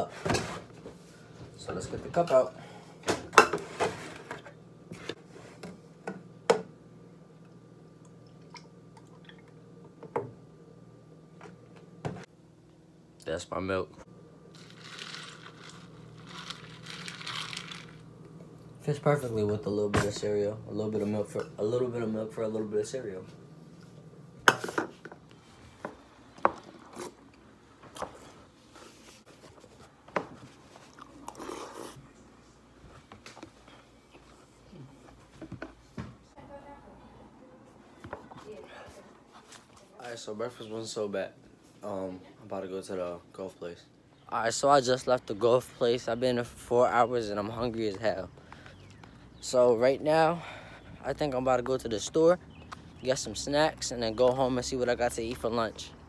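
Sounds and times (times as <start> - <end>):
crunching and chewing: 30.7 - 32.0.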